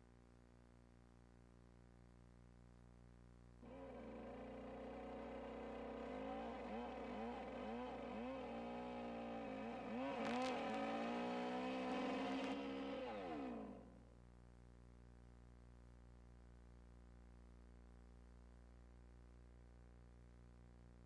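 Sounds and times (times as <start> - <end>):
chainsaw cutting log: 3.6 - 13.9.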